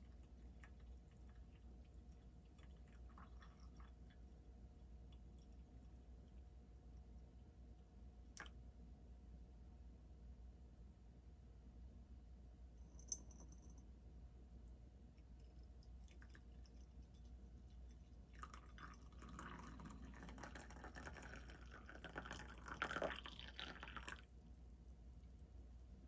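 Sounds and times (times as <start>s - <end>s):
tea pouring into cup: 0.0s - 4.3s, 15.8s - 24.4s.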